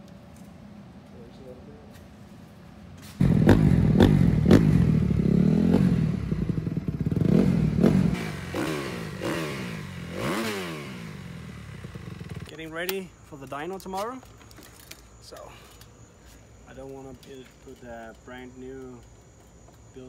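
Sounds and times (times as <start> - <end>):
motorcycle engine revving: 3.2 - 12.6.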